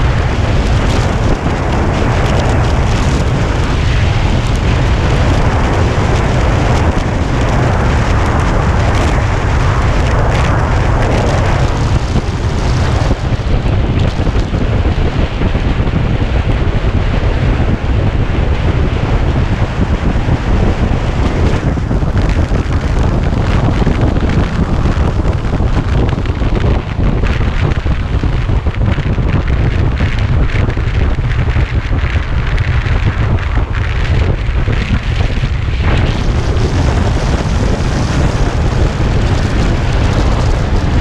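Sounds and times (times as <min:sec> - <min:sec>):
wind buffeting microphone: 0:00.0 - 0:41.0.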